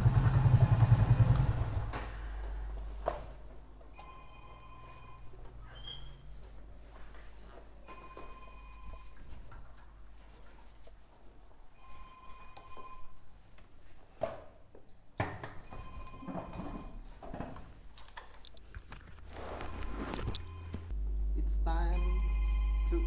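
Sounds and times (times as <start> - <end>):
faint electronic ringing tone: 4.0 - 5.4, 7.8 - 9.2, 11.7 - 13.2, 19.6 - 20.9, 21.8 - 23.0.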